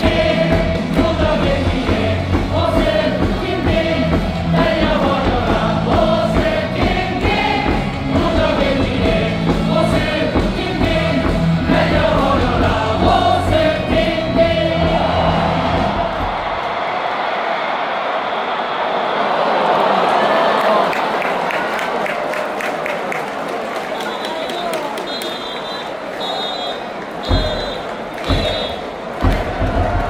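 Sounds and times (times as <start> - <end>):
crowd singing a chant: 0.0 - 16.8.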